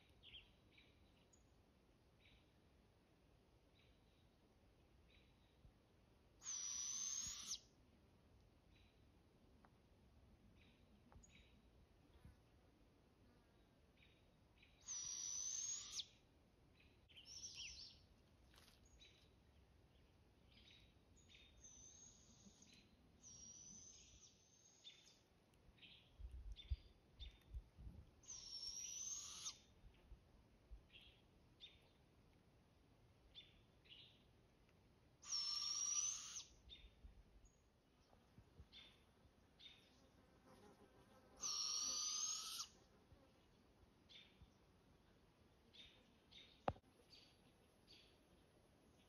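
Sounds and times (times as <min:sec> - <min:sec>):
young owls screeching: 0:06.4 - 0:07.6, 0:14.8 - 0:16.0, 0:28.3 - 0:29.6, 0:35.2 - 0:36.5, 0:41.4 - 0:42.7.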